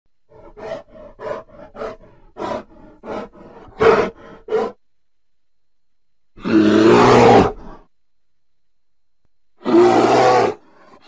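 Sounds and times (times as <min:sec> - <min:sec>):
bear grunting: 0:00.3 - 0:04.8.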